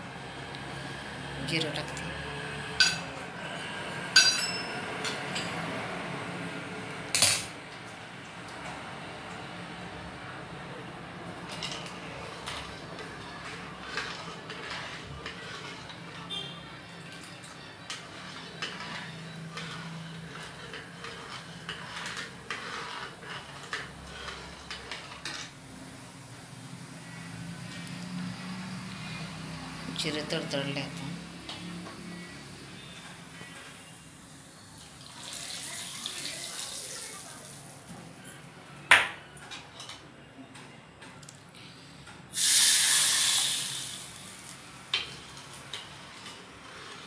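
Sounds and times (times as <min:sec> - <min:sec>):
seeds sizzling in hot oil: 0:32.2 - 0:37.8, 0:42.3 - 0:46.3.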